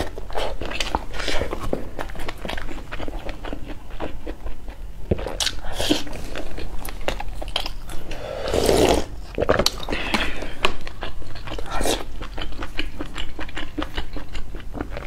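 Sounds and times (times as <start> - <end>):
person chewing noodles: 0.0 - 15.0
long slurp of broth: 8.1 - 9.1.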